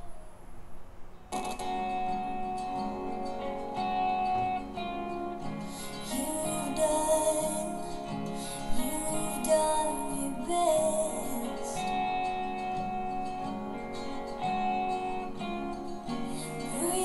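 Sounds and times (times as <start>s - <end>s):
guitar music with singing: 0.0s - 17.0s.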